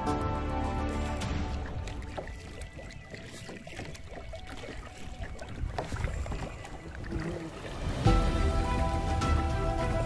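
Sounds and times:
small waves lapping against kayak hull: 0.7 - 10.0
wind rumbling on microphone: 1.5 - 9.2.

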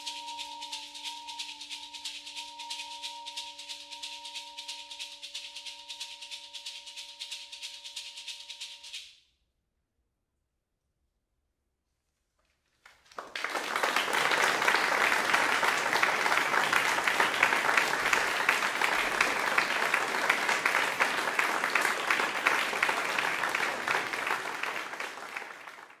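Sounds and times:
audience applauding: 12.8 - 26.0.

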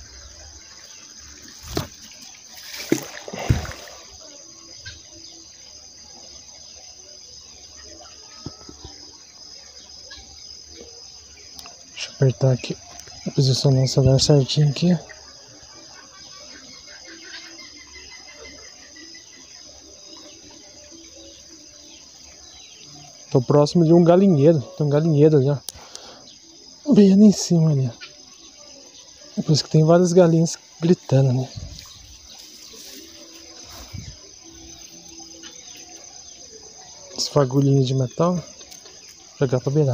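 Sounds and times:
insects chirring: 0.0 - 39.9
splash in water: 1.4 - 4.2.

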